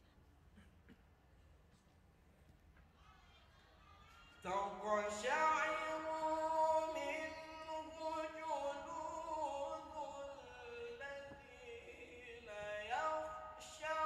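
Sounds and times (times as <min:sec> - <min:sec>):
man reciting melodically: 0:04.4 - 0:14.0.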